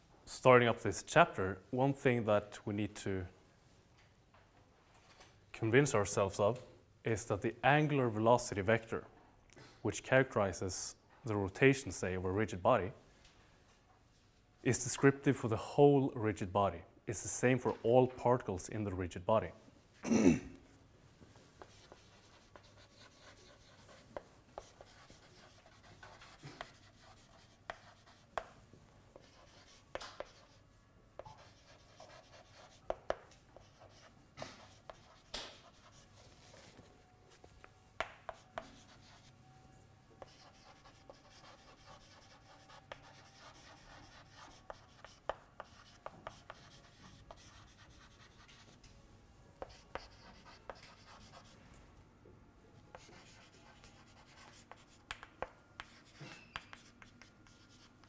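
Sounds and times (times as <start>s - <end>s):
low room hiss: 0.0s - 58.0s
chalk writing on blackboard: 21.6s - 30.6s, 31.2s - 36.1s, 38.0s - 39.3s, 40.2s - 48.8s, 49.6s - 51.6s, 52.9s - 58.0s.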